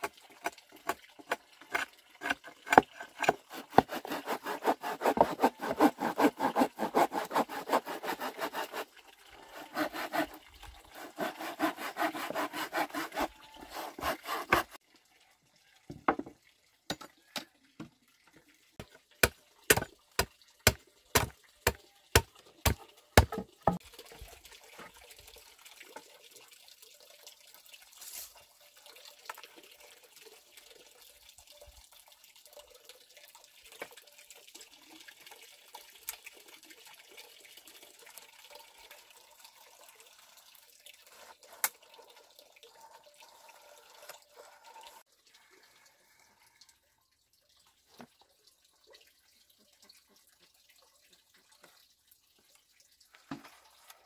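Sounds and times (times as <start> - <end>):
blade chopping on wooden board: 11.1 - 14.8, 19.7 - 19.9.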